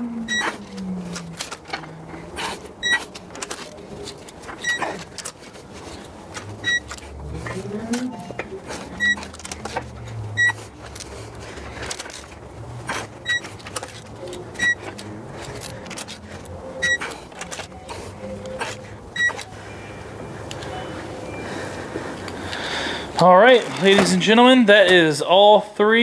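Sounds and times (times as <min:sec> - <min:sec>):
metal handling: 0:00.6 - 0:19.5, 0:23.5 - 0:25.0
torque wrench beeping: 0:02.8 - 0:03.2, 0:04.6 - 0:05.1, 0:06.6 - 0:07.0, 0:09.0 - 0:09.4, 0:10.3 - 0:10.6, 0:13.2 - 0:13.6, 0:14.5 - 0:15.0, 0:15.6 - 0:21.4.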